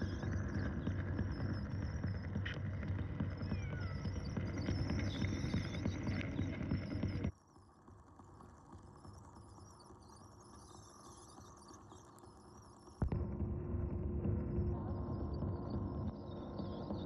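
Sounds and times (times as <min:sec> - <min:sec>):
muffled underwater treadmill rumble: 0:00.0 - 0:07.3, 0:13.0 - 0:17.0.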